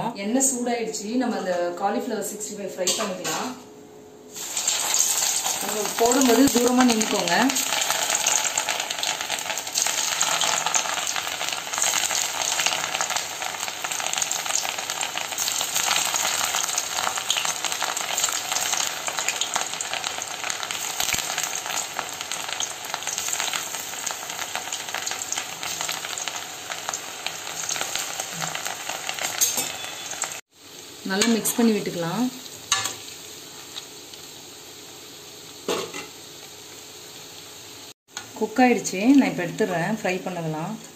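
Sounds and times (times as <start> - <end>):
food deep-frying in oil: 4.3 - 40.9.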